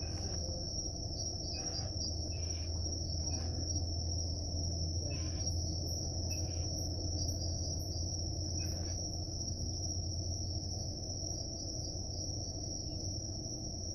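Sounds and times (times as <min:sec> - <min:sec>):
crickets chirping: 0:00.0 - 0:13.9.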